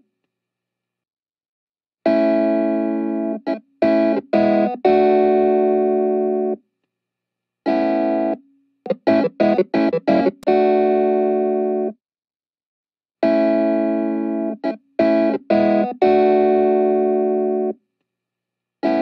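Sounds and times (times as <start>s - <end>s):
instrumental background music chords: 2.1s - 6.6s, 7.7s - 12.0s, 13.2s - 17.8s.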